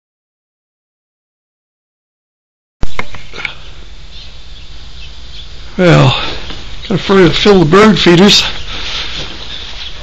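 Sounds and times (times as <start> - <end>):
low rumble and hiss: 2.8 - 10.0.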